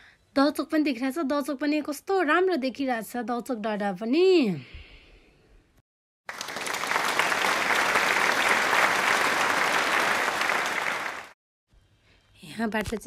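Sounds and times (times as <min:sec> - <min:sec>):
hands clapping applause: 0:06.2 - 0:11.4.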